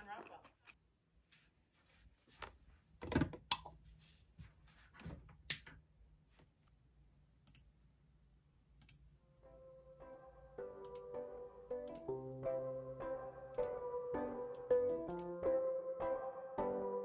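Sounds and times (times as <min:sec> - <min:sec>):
soft music with plucked notes: 0:09.5 - 0:17.0.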